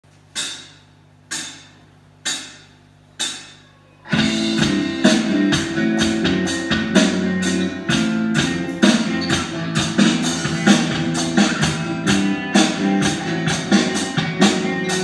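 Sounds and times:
electronic drum kit beat: 0.3s - 15.0s
backing track with guitar and bass: 4.0s - 15.0s.

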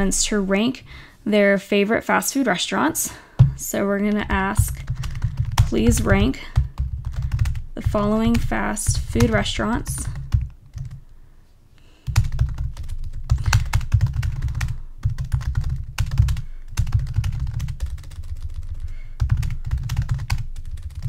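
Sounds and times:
typing on computer keyboard: 4.1s - 11.0s, 12.1s - 21.0s.

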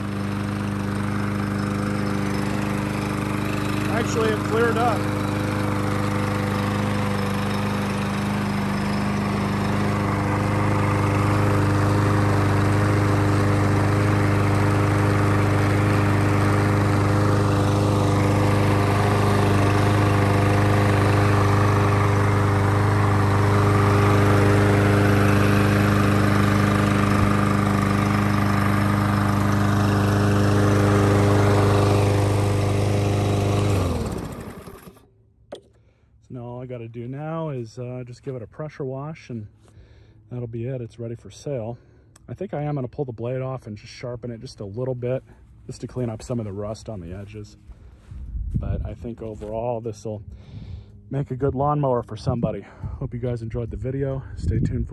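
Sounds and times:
lawn mower engine running: 0.0s - 35.7s.

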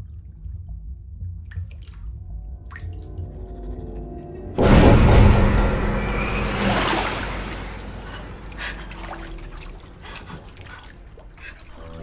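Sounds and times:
bathwater splashing: 6.4s - 12.0s
water trickling: 6.6s - 12.0s.

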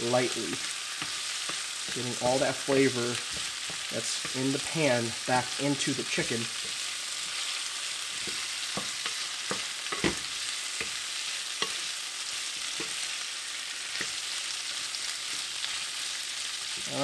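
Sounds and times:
food sizzling in a skillet: 0.0s - 17.0s
wooden spatula knocking pan: 3.2s - 4.4s, 8.1s - 11.8s.

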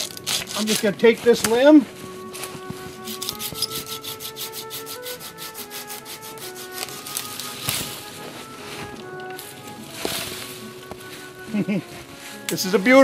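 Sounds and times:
background music: 0.0s - 13.0s
hand saw cutting wood: 3.1s - 7.4s.

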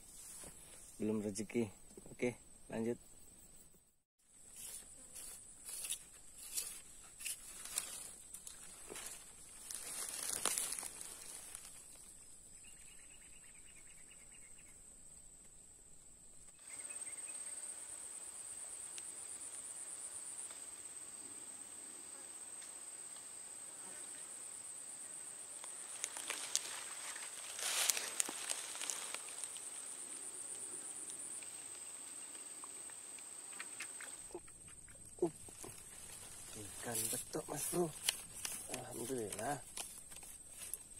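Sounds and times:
insects shrilling drone: 16.6s - 39.6s
faint clicks and rustles: 25.6s - 29.9s, 31.1s - 40.9s.

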